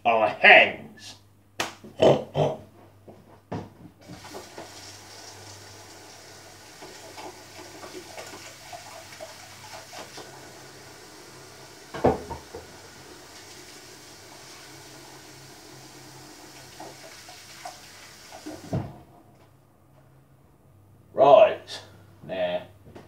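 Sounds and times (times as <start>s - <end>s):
hands washing with splashes: 4.0s - 15.3s, 16.2s - 18.7s
tap water running into sink: 4.0s - 19.0s.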